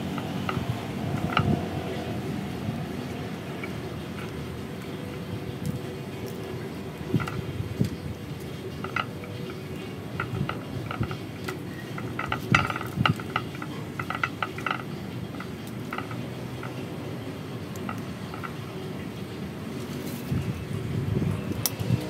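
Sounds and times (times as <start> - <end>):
clinks against ceramic pot: 8.6 - 16.9.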